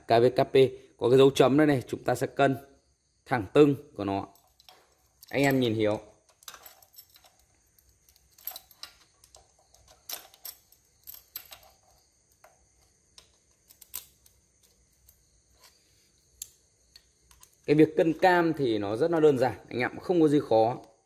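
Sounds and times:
small metal clicks and taps: 6.3s - 15.2s, 16.4s - 17.7s.

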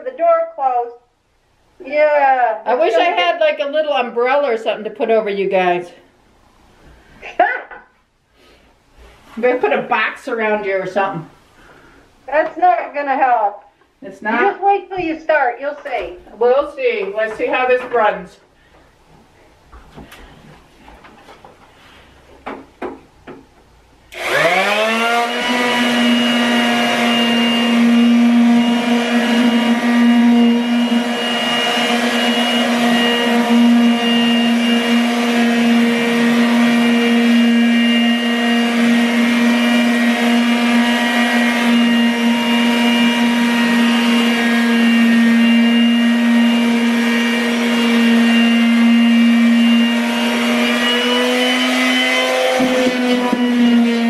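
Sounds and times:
electric sander whining: 24.1s - 54.0s.

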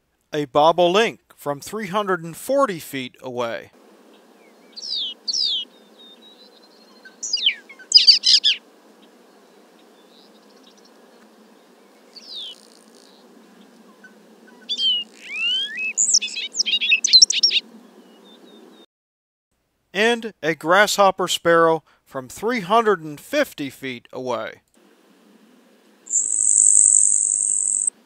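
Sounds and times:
faint steady hiss: 0.0s - 18.8s, 19.6s - 28.0s
bird singing high notes: 4.5s - 8.6s, 14.0s - 17.6s, 26.1s - 27.9s.

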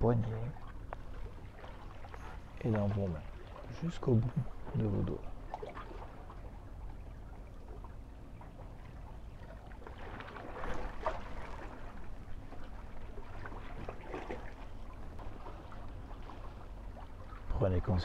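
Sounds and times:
low steady rumble: 0.0s - 18.0s
waves lapping against rocks: 0.0s - 18.0s.

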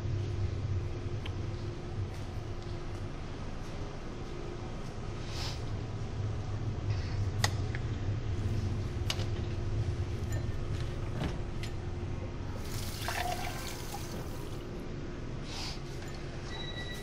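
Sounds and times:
low steady hum: 0.0s - 17.0s
water running from a tap: 12.6s - 14.4s.

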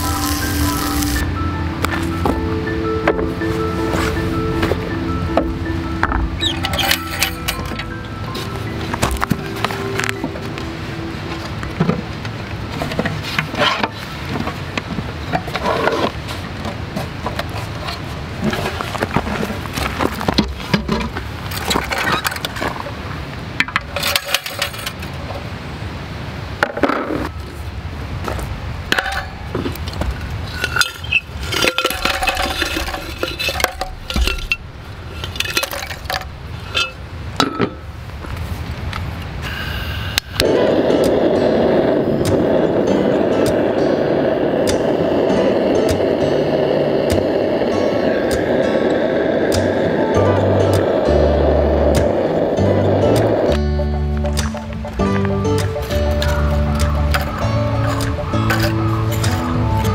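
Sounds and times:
charcoal lumps clinking: 6.4s - 7.9s, 30.5s - 37.8s, 54.4s - 59.9s.

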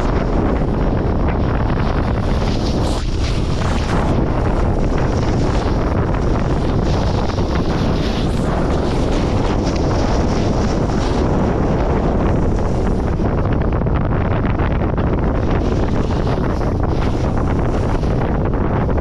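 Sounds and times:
wind buffeting microphone: 0.0s - 19.0s
snowboard edge scraping snow: 1.9s - 13.1s.

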